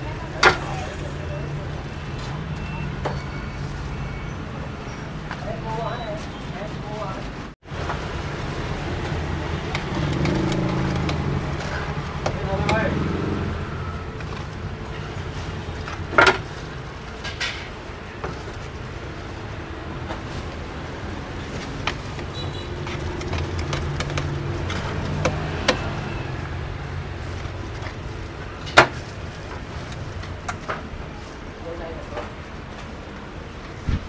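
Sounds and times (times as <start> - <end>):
low rumble of street traffic: 0.0 - 34.0
sharp clicks and knocks: 9.0 - 12.8, 21.6 - 25.9.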